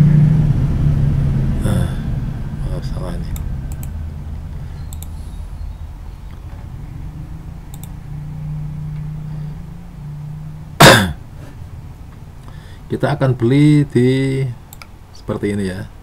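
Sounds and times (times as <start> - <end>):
low background rumble: 0.0 - 16.0
low steady hum: 0.0 - 16.0
computer mouse clicks: 4.9 - 5.2, 7.7 - 8.0.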